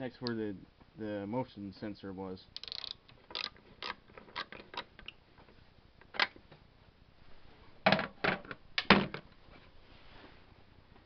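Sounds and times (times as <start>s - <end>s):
socket ratchet clicking: 2.6s - 4.9s.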